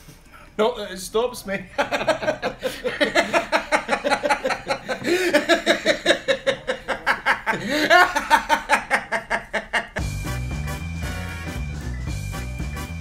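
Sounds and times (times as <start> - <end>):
man laughing heartily: 1.7 - 10.1.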